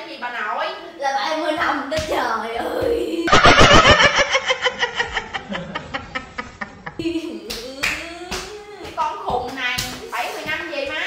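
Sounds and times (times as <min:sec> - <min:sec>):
man laughing loudly: 0:03.3 - 0:07.0.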